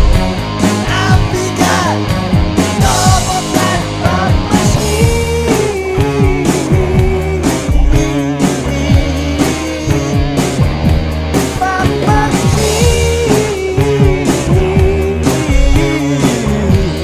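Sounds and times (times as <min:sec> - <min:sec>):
guitar: 0:00.0 - 0:17.0
steady drum beat: 0:00.0 - 0:17.0.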